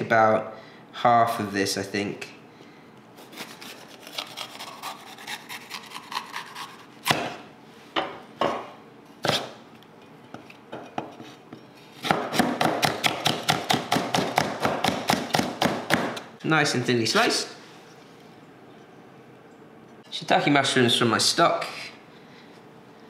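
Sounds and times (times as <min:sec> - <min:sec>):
knife cutting on chopping board: 0:03.2 - 0:07.4.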